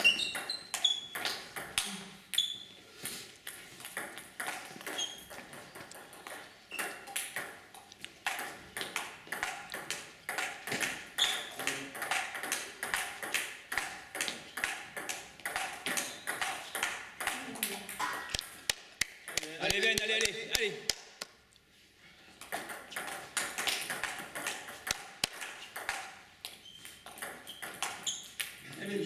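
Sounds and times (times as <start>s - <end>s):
table tennis ball clicking: 22.5s - 28.6s.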